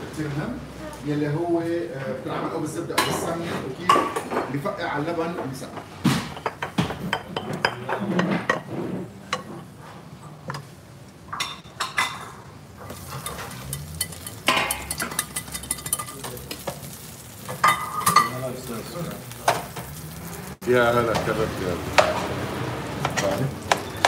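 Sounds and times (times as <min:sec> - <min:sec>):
hot fat sizzling: 0:11.5 - 0:24.0.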